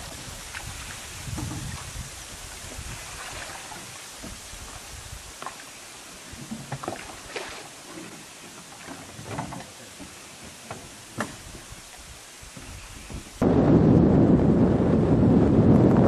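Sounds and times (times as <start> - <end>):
watery hiss: 0.0 - 8.8, 9.8 - 13.4.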